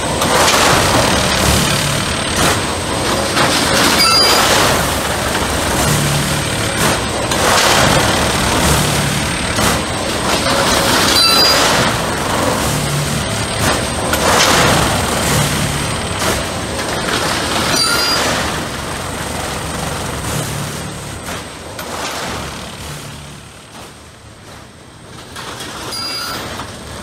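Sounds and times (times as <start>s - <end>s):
heavy machinery noise: 0.0s - 27.0s.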